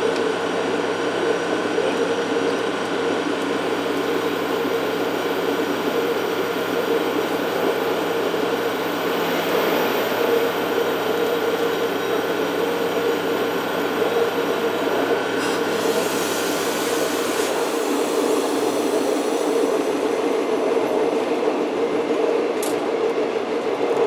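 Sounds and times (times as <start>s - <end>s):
diesel engine drone: 0.0s - 24.0s.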